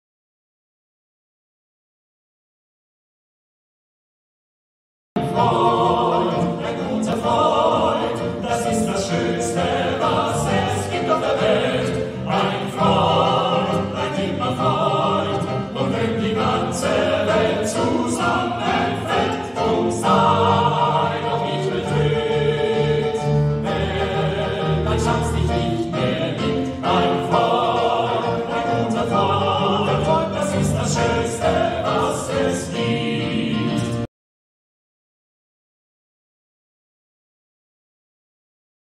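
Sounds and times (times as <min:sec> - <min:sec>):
piano accompaniment: 0:05.2 - 0:34.1
men singing operatic harmony: 0:05.3 - 0:34.1.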